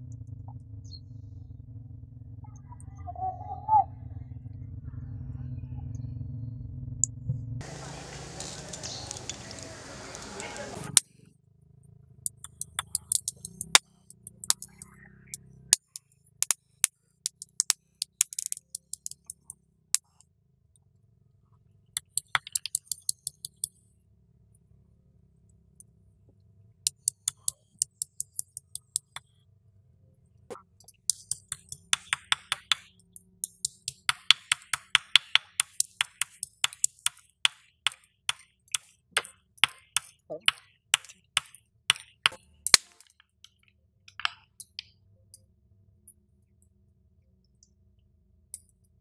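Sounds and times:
faint background music: 0:07.6 - 0:11.0
stone pestle pounding: 0:12.3 - 0:14.8, 0:30.5 - 0:42.4.

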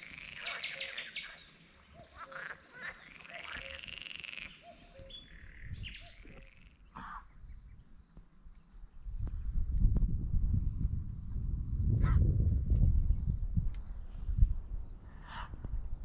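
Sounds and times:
frogs calling: 0:00.0 - 0:07.8
birds singing: 0:00.0 - 0:08.7.

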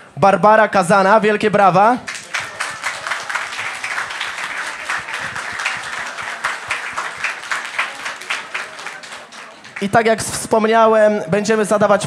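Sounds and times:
audience applauding: 0:02.0 - 0:10.3.

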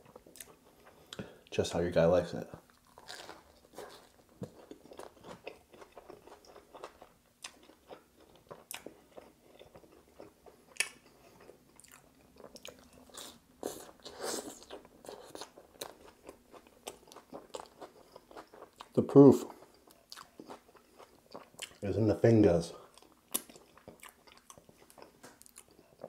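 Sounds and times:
chewing and crunching sandwich: 0:02.6 - 0:21.9, 0:22.8 - 0:26.0.

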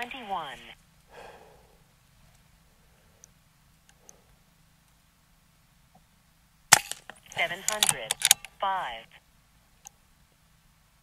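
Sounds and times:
faint clicks: 0:03.2 - 0:05.1
air rifle firing: 0:06.7 - 0:07.0.

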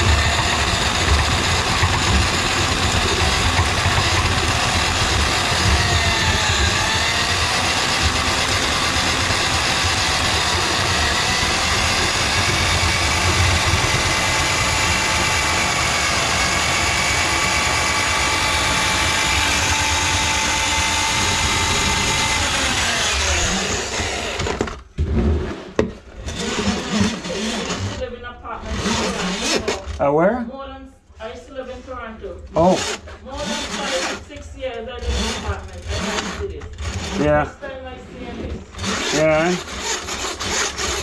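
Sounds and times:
drain auger motor running: 0:00.0 - 0:24.8, 0:26.3 - 0:28.0, 0:38.8 - 0:41.0.

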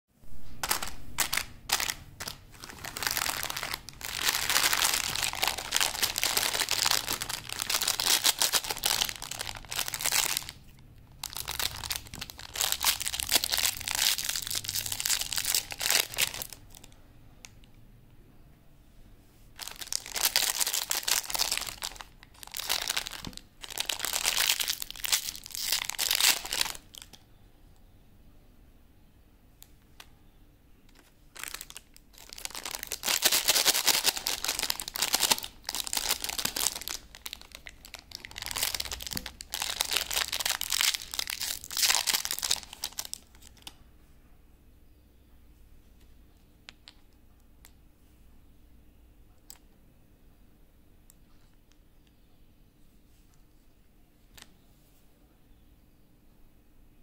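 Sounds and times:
plastic wrappers crinkling: 0:00.4 - 0:16.9, 0:19.6 - 0:27.2, 0:30.9 - 0:43.8.

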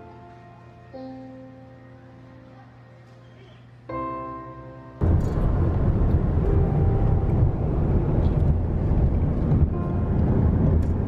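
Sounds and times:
moving car rumble: 0:05.0 - 0:11.0.

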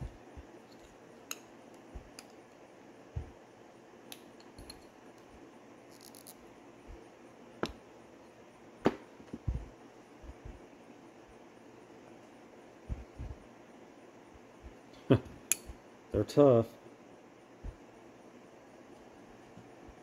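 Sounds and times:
faint steady hum: 0:00.0 - 0:20.0
small clicks and taps of parts: 0:00.6 - 0:02.6, 0:04.1 - 0:05.3.

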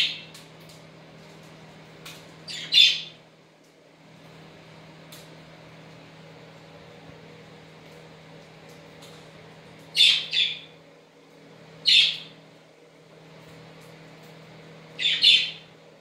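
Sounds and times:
budgerigar calls: 0:10.0 - 0:10.6, 0:11.9 - 0:12.3, 0:15.0 - 0:15.6.

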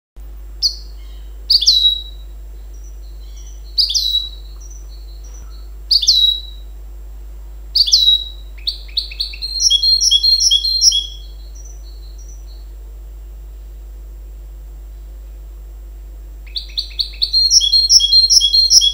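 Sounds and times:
finch singing: 0:00.6 - 0:06.7, 0:07.8 - 0:12.8, 0:16.4 - 0:18.9.

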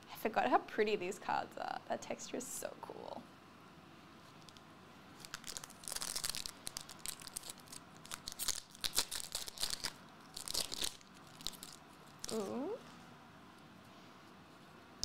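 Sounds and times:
foil wrapper crinkling and tearing: 0:05.2 - 0:12.5.

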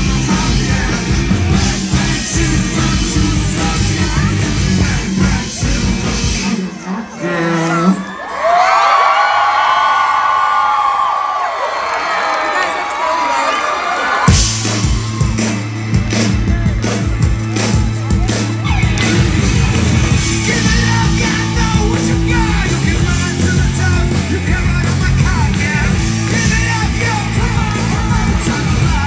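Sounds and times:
drums: 0:00.0 - 0:07.0, 0:12.5 - 0:29.0
bass guitar: 0:00.0 - 0:07.6, 0:14.3 - 0:29.0
person singing: 0:00.0 - 0:08.1.

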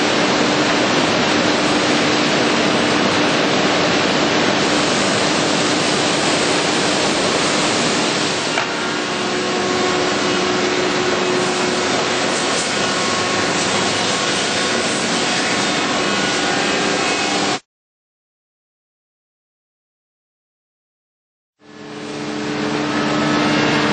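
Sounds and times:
sanding machine running: 0:00.0 - 0:17.6, 0:21.8 - 0:23.9.

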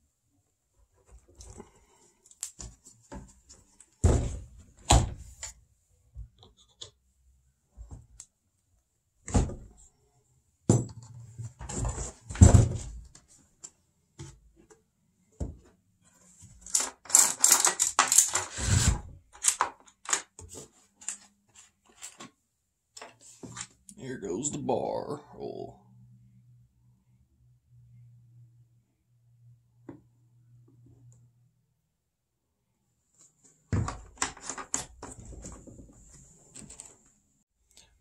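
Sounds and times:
chainsaw parts clinking and rattling: 0:16.6 - 0:18.6.

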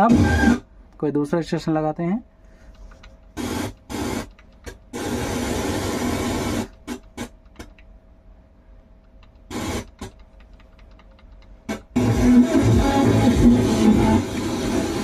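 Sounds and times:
radio static hiss: 0:03.4 - 0:04.3, 0:04.9 - 0:07.3, 0:09.5 - 0:10.1, 0:11.7 - 0:15.0.

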